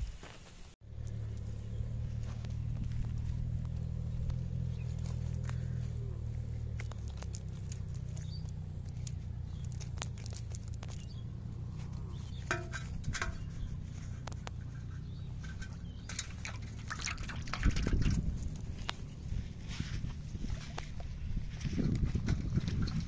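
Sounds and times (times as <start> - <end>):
low rumble: 0.8 - 23.0
net clicking and rustling: 6.7 - 11.2.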